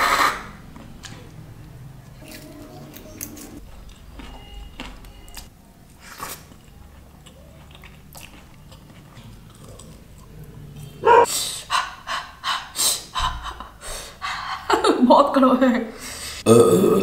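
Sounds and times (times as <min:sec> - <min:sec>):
soft chewing and mouth clicks: 0:00.7 - 0:11.0.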